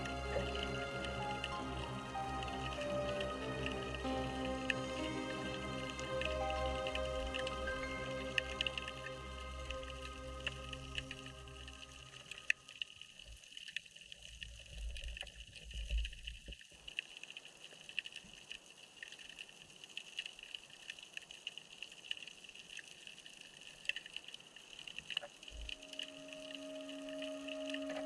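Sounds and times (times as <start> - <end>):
high-pitched underwater hum: 0.0 - 12.9, 25.5 - 28.0
crackling clicks: 9.7 - 28.0.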